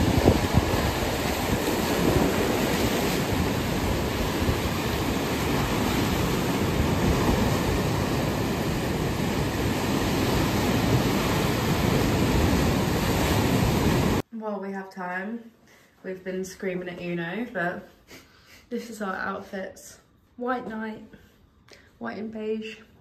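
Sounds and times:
waves breaking on rocks: 0.0s - 14.2s.

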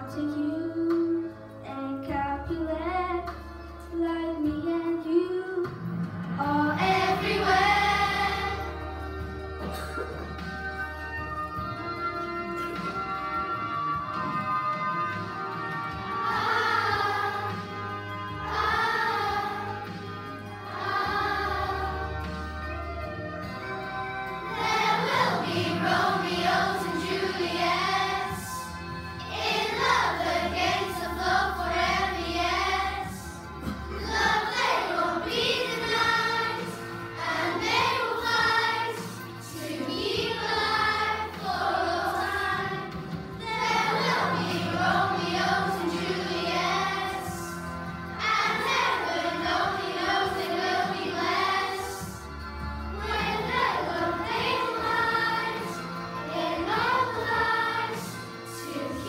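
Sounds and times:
instrumental accompaniment: 5.7s - 59.0s
children singing into microphones: 24.6s - 47.6s, 48.2s - 52.2s, 53.0s - 59.0s.

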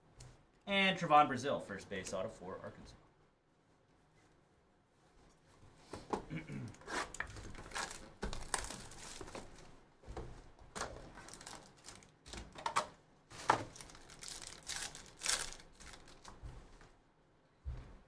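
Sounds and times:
cardboard flaps opening: 6.8s - 16.3s
foil wrappers crinkling and tearing: 6.9s - 9.7s, 10.8s - 12.6s, 13.3s - 16.4s.

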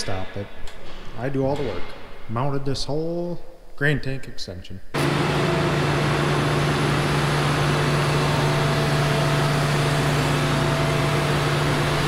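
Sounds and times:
diesel engine humming: 5.0s - 12.0s.

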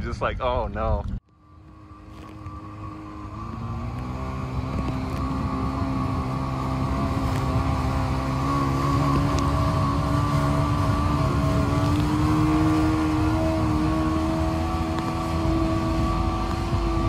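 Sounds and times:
jet ski engine running: 1.2s - 17.0s.

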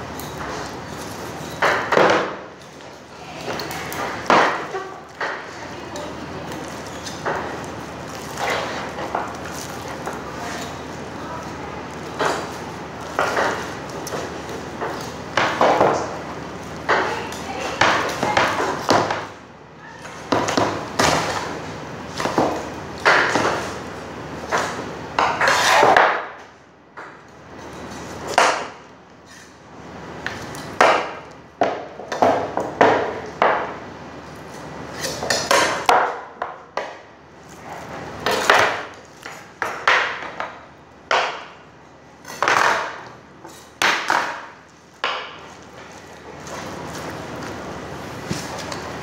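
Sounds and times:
knife scraping on cutting board: 25.4s - 26.0s, 34.6s - 35.6s.

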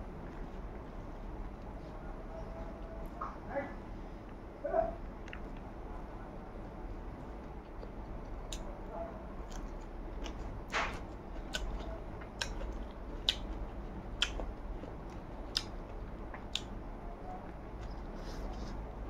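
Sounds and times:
wet chewing and lip-smacking: 5.2s - 5.7s, 7.5s - 8.7s, 9.4s - 16.8s.

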